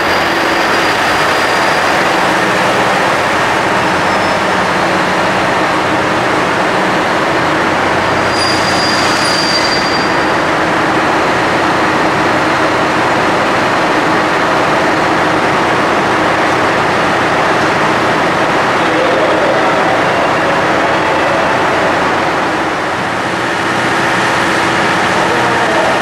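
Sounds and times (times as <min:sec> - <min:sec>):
diesel train engine rumbling: 0:00.0 - 0:26.0
brief high squeal: 0:04.0 - 0:04.5, 0:08.2 - 0:10.4.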